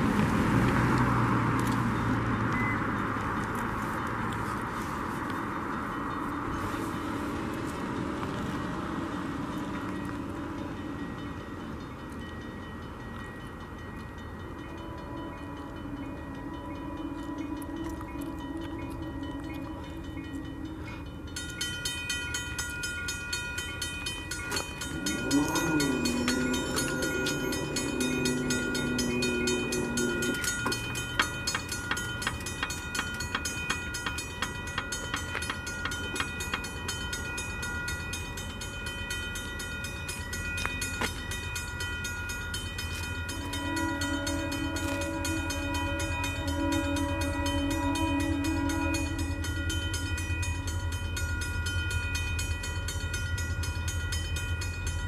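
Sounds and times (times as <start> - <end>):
low engine rumble: 0.0 - 55.0
locomotive air horn blasts: 14.7 - 21.4, 24.8 - 32.1, 42.9 - 51.0.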